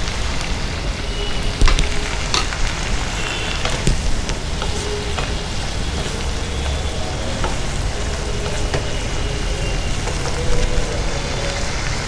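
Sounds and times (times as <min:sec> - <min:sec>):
peas sizzling in a pan: 0:00.2 - 0:10.4
wooden spatula scraping a pan: 0:02.0 - 0:10.4.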